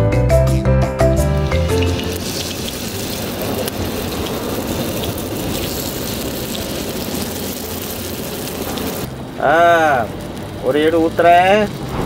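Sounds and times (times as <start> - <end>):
wind rumbling on microphone: 11.5 - 12.0.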